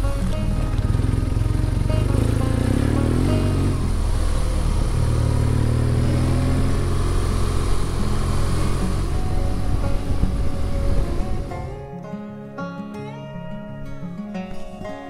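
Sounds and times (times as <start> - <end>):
motorcycle engine running: 0.0 - 11.9.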